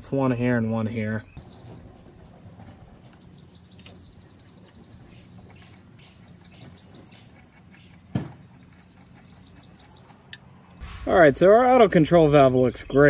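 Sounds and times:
small birds chirping: 0.0s - 10.8s
low steady hum: 1.7s - 13.0s
sharp knock: 10.8s - 12.2s.

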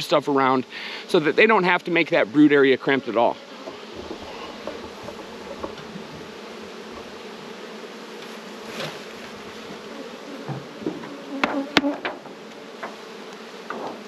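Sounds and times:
honeybees buzzing: 0.0s - 14.0s
hive boxes knocking: 3.0s - 14.0s.

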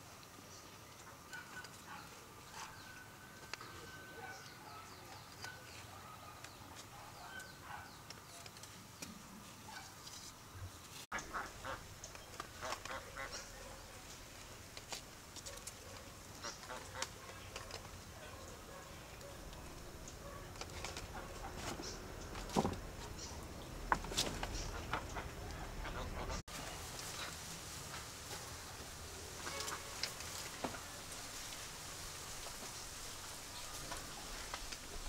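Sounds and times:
ducks honking: 11.1s - 13.8s, 16.4s - 17.6s, 24.5s - 26.4s.

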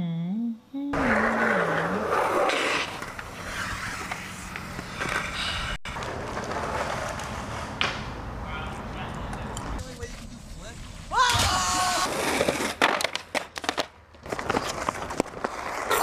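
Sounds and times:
person humming a tune: 0.0s - 1.0s
skateboard wheels rumbling on pavement: 1.0s - 16.0s.

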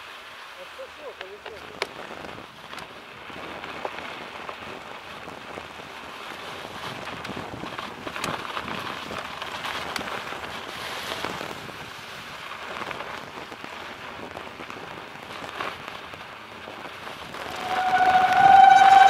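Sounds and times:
bike tyres crackling on snow: 0.0s - 19.0s.

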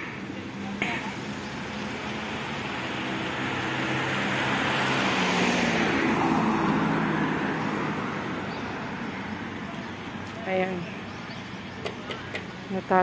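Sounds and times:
road traffic: 0.0s - 13.0s
car driving past: 1.6s - 10.2s.

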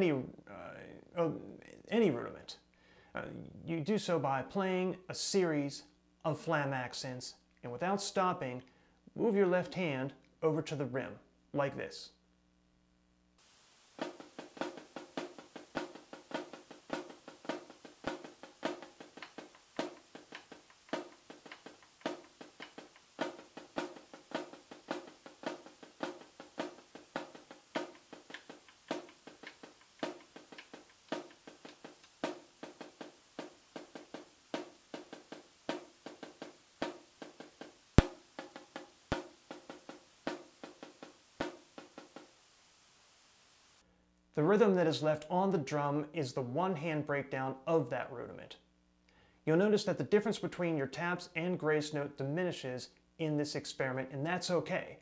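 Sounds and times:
snare drum flam accents: 13.4s - 42.4s
drumstick clicking on rim: 14.1s - 42.2s.

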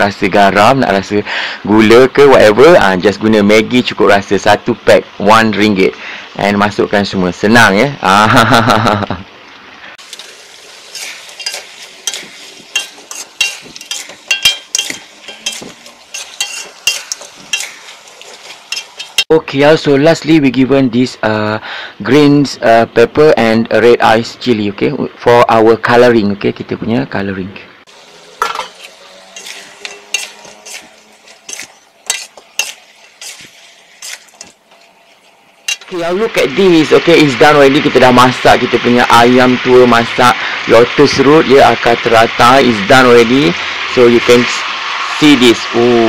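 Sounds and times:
low frying sizzle: 0.0s - 24.5s, 27.8s - 46.0s
metal spatula clinking on wok: 11.0s - 17.8s, 18.7s - 19.2s, 28.4s - 30.8s, 35.7s - 35.9s.

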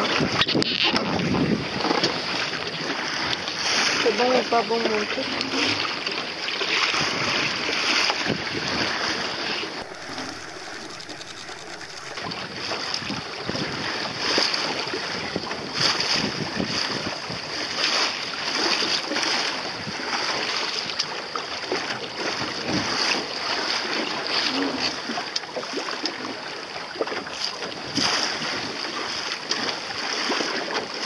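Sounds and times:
water splashing along hull: 0.0s - 31.0s
wind buffeting microphone: 6.9s - 17.8s.

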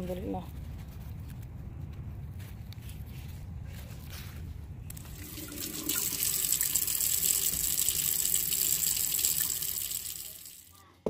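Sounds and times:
water running from a tap: 5.0s - 10.8s.

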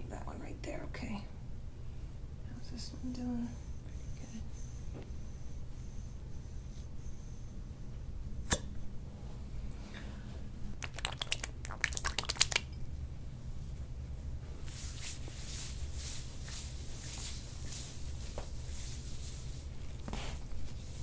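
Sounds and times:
hand rubbing oil on skin: 14.6s - 21.0s.

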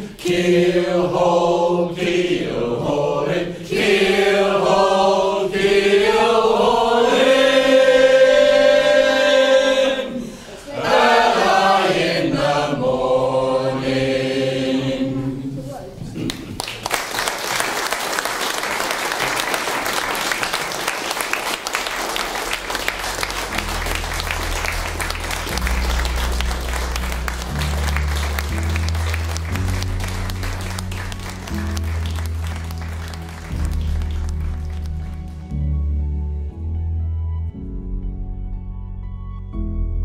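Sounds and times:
audience applauding: 16.2s - 35.7s
music with deep bass notes: 22.8s - 40.0s.

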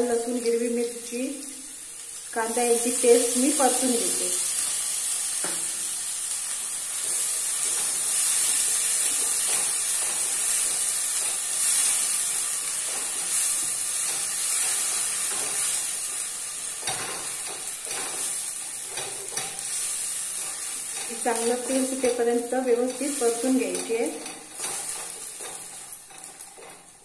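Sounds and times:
paste sizzling in hot oil: 0.0s - 27.0s
wooden spatula scraping pan: 16.8s - 27.0s.

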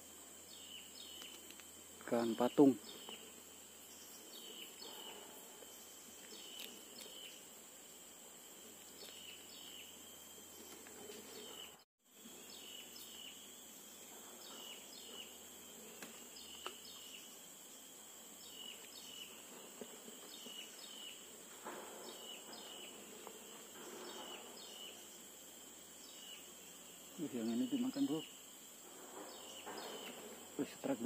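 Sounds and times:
insects droning: 0.0s - 31.0s.

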